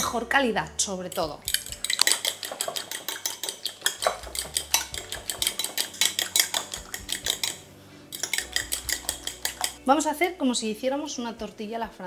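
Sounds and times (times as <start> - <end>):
fork beating eggs in bowl: 1.1 - 9.8.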